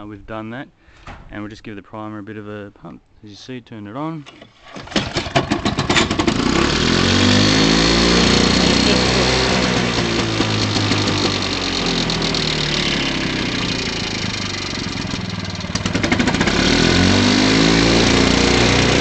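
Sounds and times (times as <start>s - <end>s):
lawn mower engine running: 4.2s - 19.0s.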